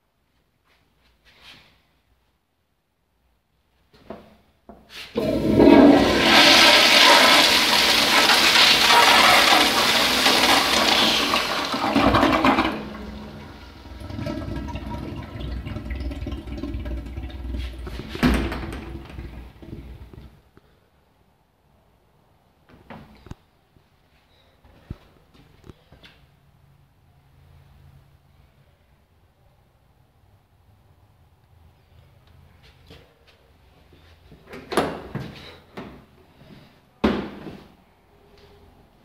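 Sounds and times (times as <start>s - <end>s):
toilet flushing: 5.1s - 20.4s
toilet tank refilling: 5.2s - 20.3s.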